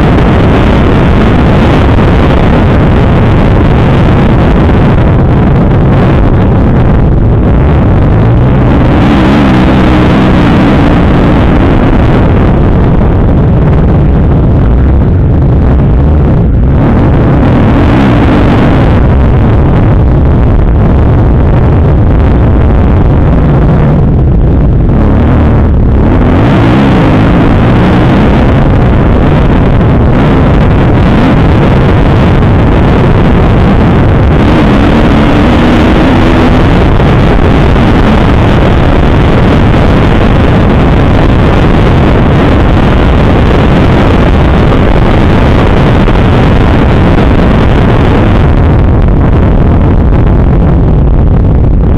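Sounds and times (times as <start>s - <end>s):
dirt bike engine revving: 8.2s - 11.9s, 25.0s - 28.6s.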